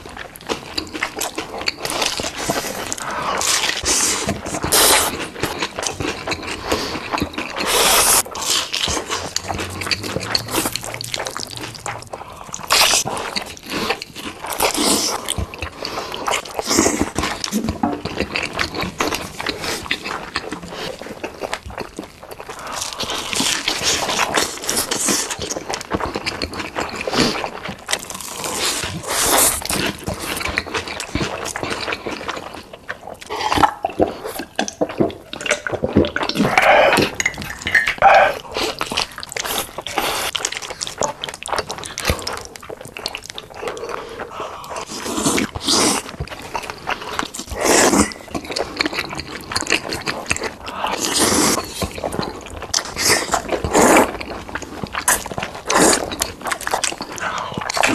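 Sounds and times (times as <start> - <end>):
noodles slurped and chewed: 0.0 - 57.9.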